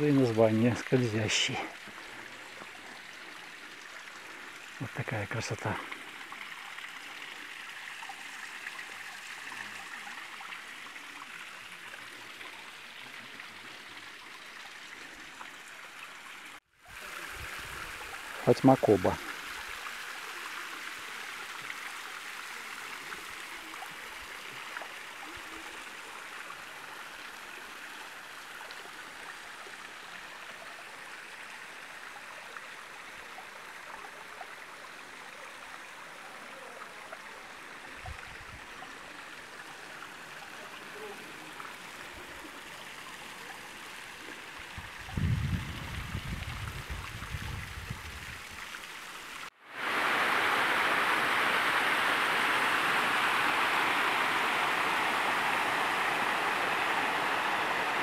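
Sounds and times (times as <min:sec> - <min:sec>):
brook babbling close up: 0:00.0 - 0:58.0
waterfall trickling: 0:00.0 - 0:58.0.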